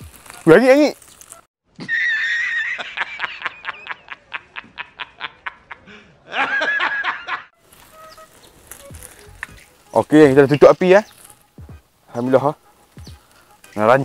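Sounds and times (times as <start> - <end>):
man laughing hard: 1.8 - 7.5.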